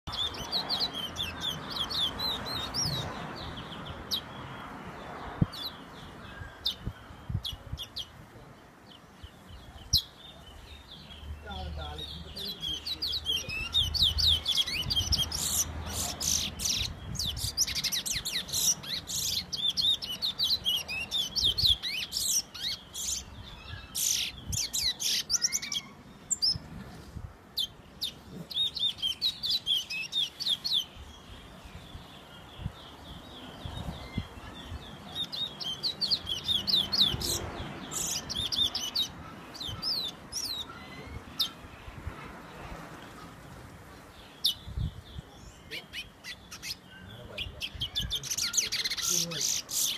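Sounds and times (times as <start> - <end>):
finch singing whistled notes: 44.4 - 49.9.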